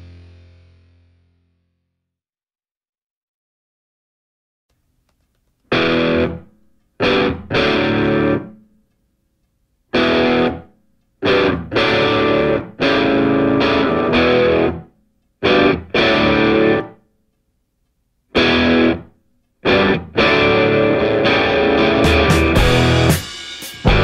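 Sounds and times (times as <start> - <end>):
distorted electric guitar chords: 0.0 - 1.7, 5.7 - 8.6, 9.9 - 17.0, 18.4 - 24.0.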